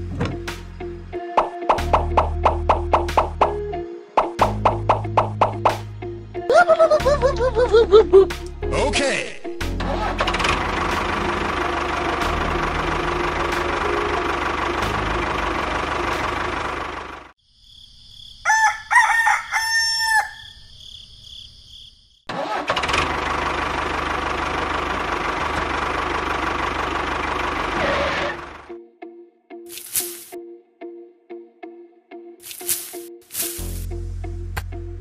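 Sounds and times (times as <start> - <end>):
engine running: 9.6 - 17.4, 22.3 - 28.8
rooster crowing: 18.4 - 20.7.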